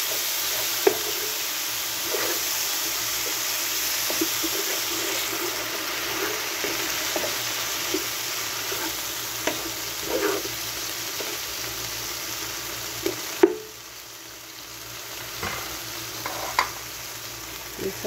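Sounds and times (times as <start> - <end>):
spatula scraping a pan: 0.0 - 11.4, 16.2 - 16.7
food sizzling in a pan: 0.0 - 18.0.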